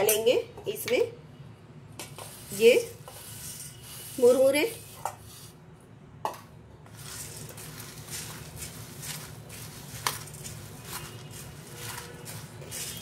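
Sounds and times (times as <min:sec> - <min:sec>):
puffed rice rustling in bowl: 0:06.9 - 0:13.0.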